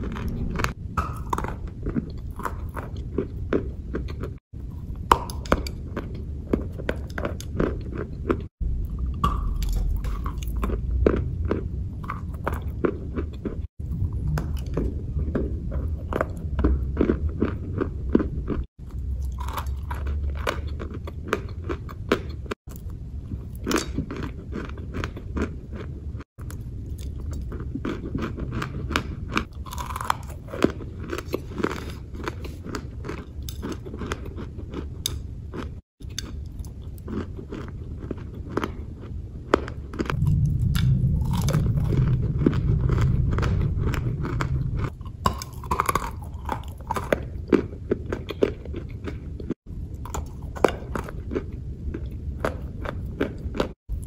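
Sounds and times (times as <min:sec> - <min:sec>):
low rumble: 0:00.0 - 0:03.9, 0:08.3 - 0:21.2, 0:39.2 - 0:47.8
crunchy chewing: 0:00.0 - 0:54.0.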